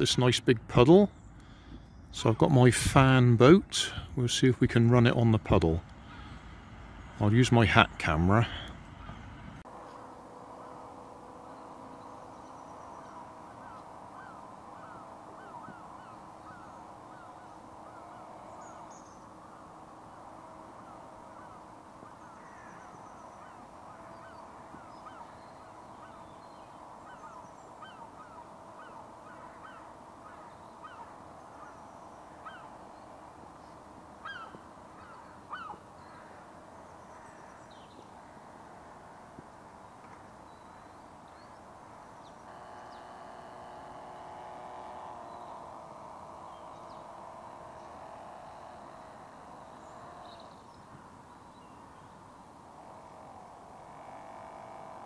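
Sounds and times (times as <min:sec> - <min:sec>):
electric motor whine: 0:42.0 - 0:51.1, 0:52.6 - 0:55.0.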